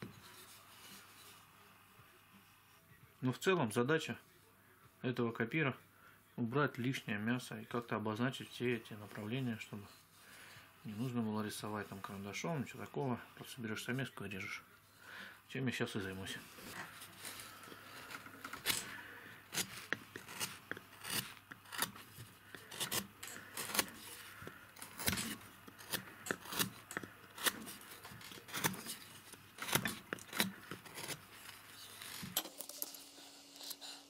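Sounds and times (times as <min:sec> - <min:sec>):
chisel cutting wood: 0:16.6 - 0:34.0.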